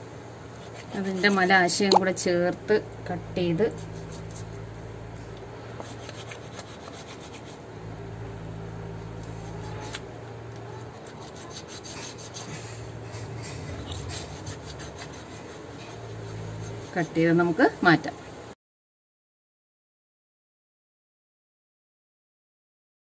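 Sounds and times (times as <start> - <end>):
knife rubbing and clicking on chicken: 0.5 - 2.0, 5.3 - 7.6, 9.3 - 17.2
low hum: 2.0 - 18.5.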